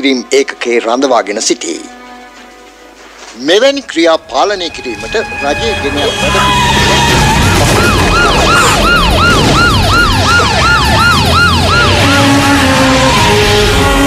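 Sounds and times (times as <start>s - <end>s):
siren sweeping up and down: 5.2s - 14.0s.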